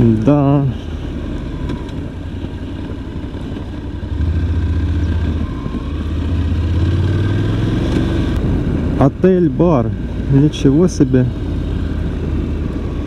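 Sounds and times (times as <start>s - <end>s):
motorcycle engine running: 0.0s - 8.9s.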